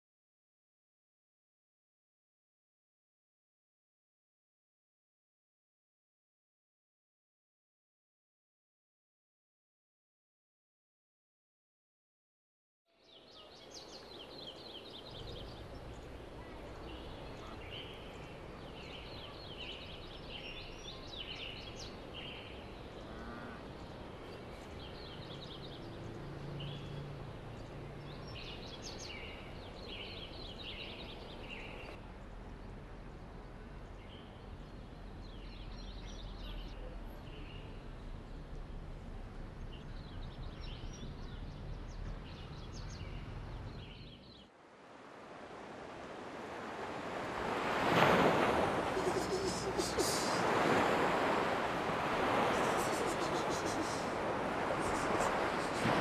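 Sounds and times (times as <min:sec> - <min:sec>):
small birds chirping: 0:13.0 - 0:38.6, 0:39.4 - 0:44.5, 0:48.7 - 0:56.0
background hiss: 0:44.7 - 0:56.0
rushing noise: 0:46.8 - 0:56.0.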